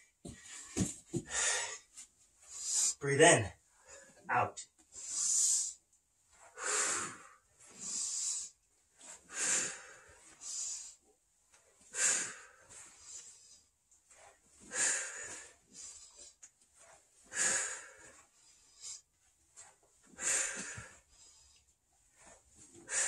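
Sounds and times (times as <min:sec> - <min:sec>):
man breathing forcefully: 0:00.3 - 0:01.9, 0:06.5 - 0:08.5, 0:09.2 - 0:11.0, 0:11.9 - 0:13.5, 0:14.6 - 0:16.4, 0:17.3 - 0:19.0, 0:20.2 - 0:21.6, 0:22.8 - 0:23.0.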